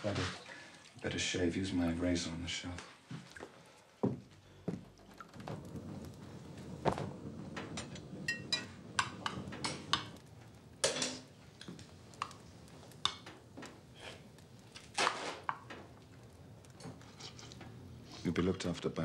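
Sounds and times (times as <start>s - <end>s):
metallic clanks at iron stove: 7.7s - 10.2s, 10.8s - 12.4s.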